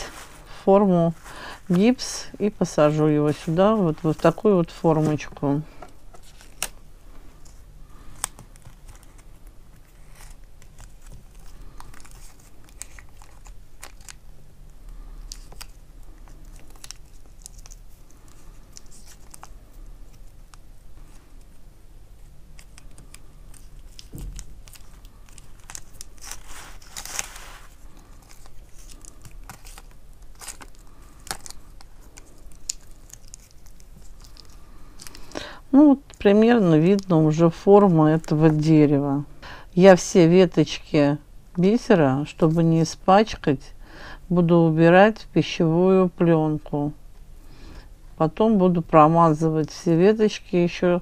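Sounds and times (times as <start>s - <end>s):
tape ripping: 22.6s - 35.2s.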